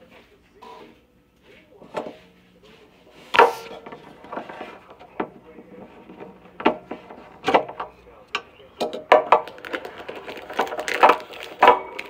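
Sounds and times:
objects knocking on hard surface: 3.3s - 8.0s, 8.8s - 12.0s.

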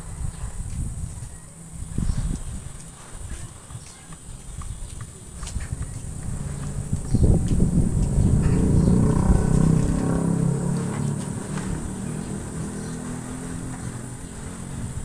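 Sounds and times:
small motorcycle engine revving: 5.3s - 15.0s.

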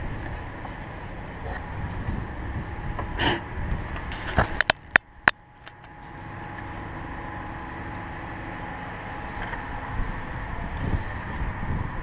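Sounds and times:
wind noise on microphone: 0.0s - 5.4s, 9.3s - 12.0s.

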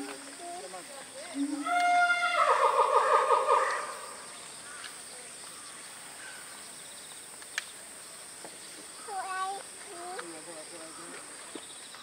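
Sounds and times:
high insect drone: 0.0s - 12.0s
faint click: 7.4s - 7.7s.

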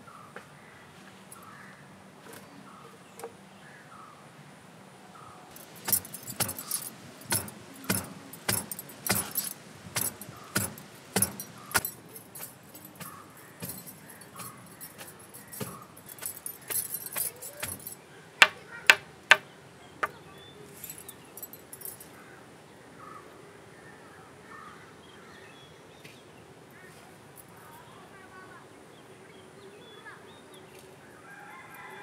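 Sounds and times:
sharp clinking knocks: 5.5s - 19.4s, 20.0s - 20.2s, 20.8s - 22.0s.

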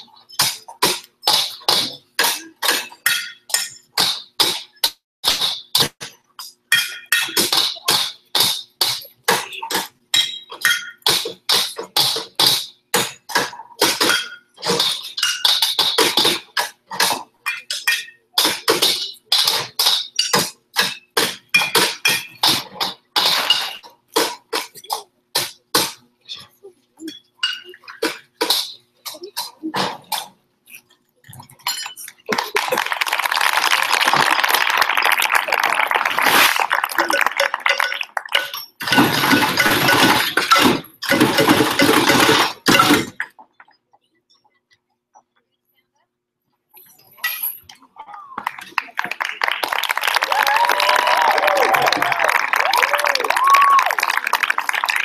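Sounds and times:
metal wheelbarrows struck: 37.7s - 43.2s.

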